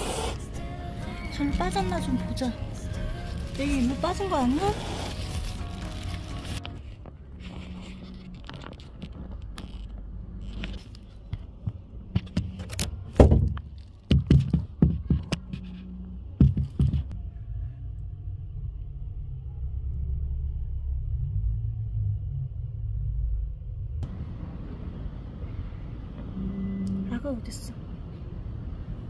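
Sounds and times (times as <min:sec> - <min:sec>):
steady low rumble: 0:16.1 - 0:27.0.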